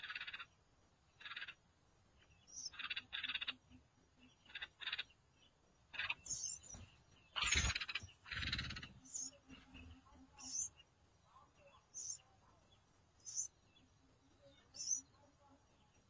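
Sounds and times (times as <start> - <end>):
nestlings raspy begging calls: 0.0 - 0.6, 1.2 - 1.6, 2.5 - 3.7, 4.4 - 5.1, 5.9 - 6.7, 7.3 - 9.6.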